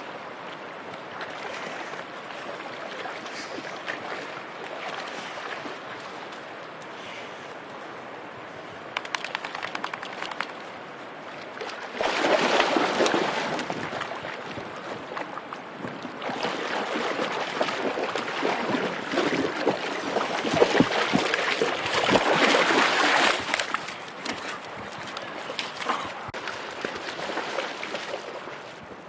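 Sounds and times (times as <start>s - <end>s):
river water rushing: 9.5s - 28.9s
dog splashing through water: 11.6s - 14.4s, 16.2s - 24.6s, 25.4s - 28.7s.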